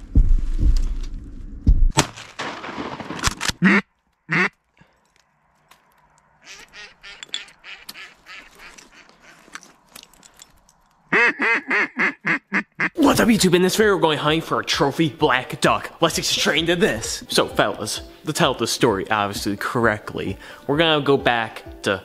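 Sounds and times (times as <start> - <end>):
ducks quacking: 3.6 - 4.6, 6.4 - 9.5, 11.1 - 13.0.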